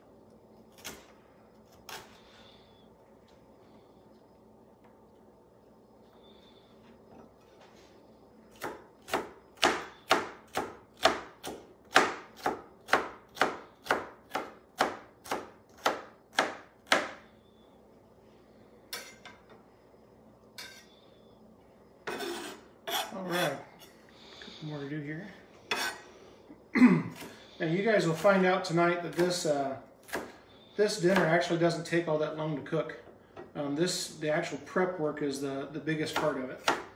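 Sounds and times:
knife chopping on cutting board: 8.5s - 17.2s, 29.1s - 30.3s, 36.1s - 36.9s
knife scraping cutting board: 20.6s - 20.9s, 22.0s - 24.0s, 25.7s - 26.1s.

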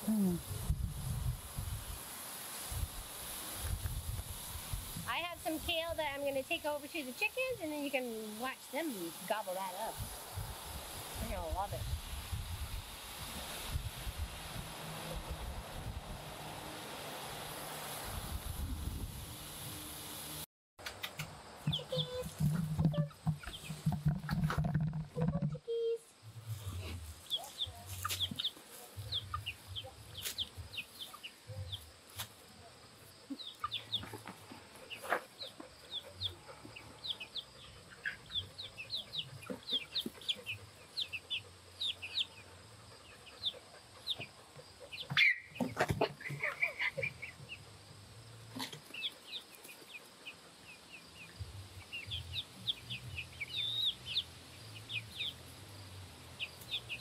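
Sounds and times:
chickens clucking and chirping: 21.1s - 25.5s, 26.2s - 57.0s.

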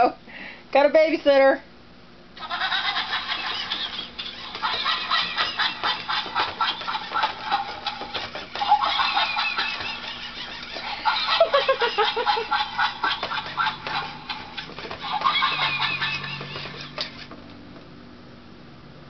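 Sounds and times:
toy monkey chattering: 2.4s - 17.2s.

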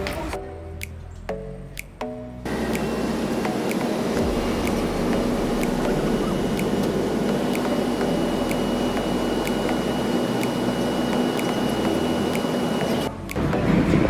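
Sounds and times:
faint high whine: 2.5s - 13.1s.

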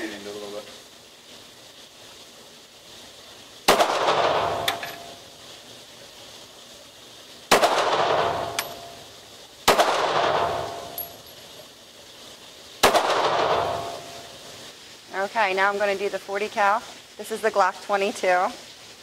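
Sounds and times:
light clink: 8.6s - 8.9s, 10.7s - 11.6s.

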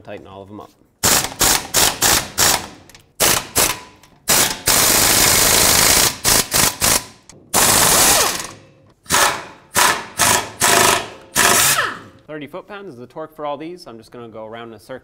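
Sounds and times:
pneumatic air ratchet bursts: 1.0s - 12.2s.

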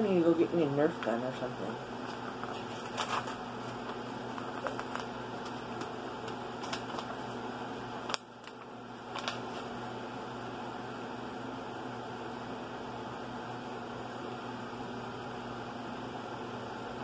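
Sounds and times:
ceiling fan humming: 0.0s - 17.0s
paper crinkling: 2.0s - 9.8s.

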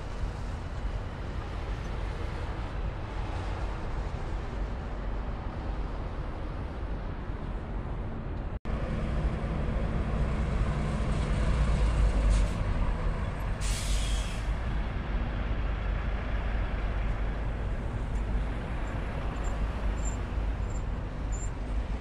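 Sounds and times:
truck diesel engine rumble: 7.8s - 22.0s
air brakes hissing: 13.4s - 14.6s.

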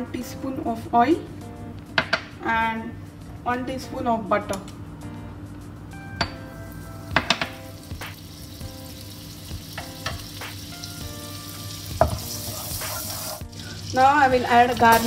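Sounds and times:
butter sizzling in oil: 6.8s - 15.0s
spatula tapping a pan: 7.1s - 7.7s, 11.9s - 12.4s.

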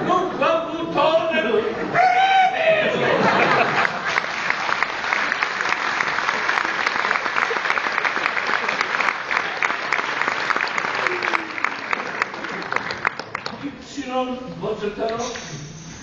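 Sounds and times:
audience applauding: 3.2s - 13.7s.

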